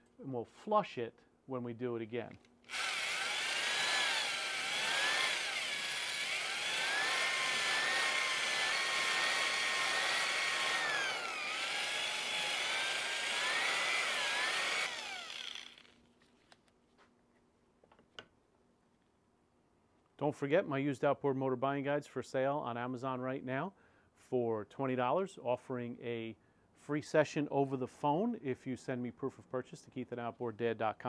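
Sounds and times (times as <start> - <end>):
electric drill motor whine: 2.7 - 16.0.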